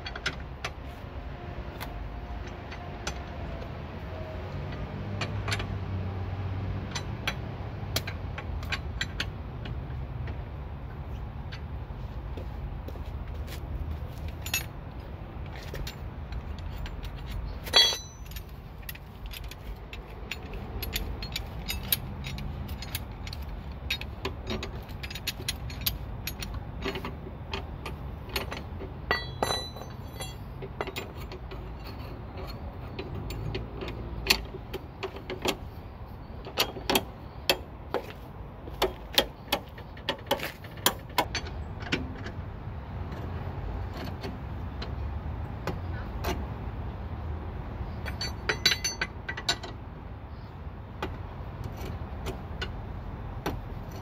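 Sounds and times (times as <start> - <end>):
loud ringing metal clank: 17.6 - 18.4, 29.1 - 30.4.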